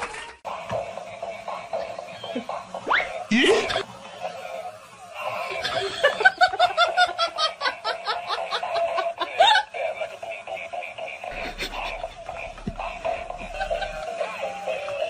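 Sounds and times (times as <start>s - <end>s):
person laughing: 3.3s - 3.8s, 5.3s - 14.8s.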